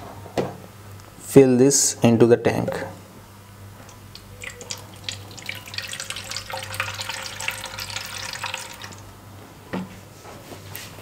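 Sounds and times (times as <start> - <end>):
water pouring into plastic tank: 3.9 - 9.1.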